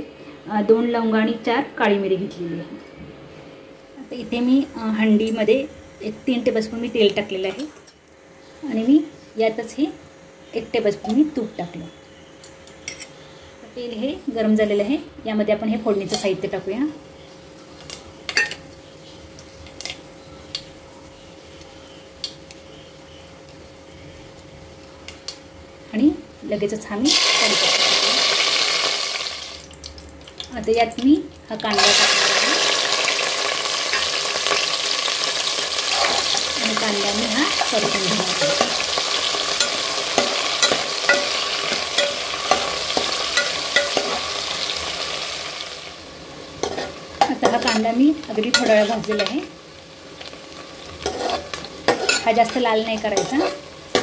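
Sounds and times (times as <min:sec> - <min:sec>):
faint steady hum: 0:00.0 - 0:54.0
seeds popping in hot oil: 0:21.5 - 0:25.5, 0:26.4 - 0:45.9, 0:46.6 - 0:49.6, 0:50.2 - 0:54.0
wooden spatula scraping pot: 0:51.0 - 0:53.7.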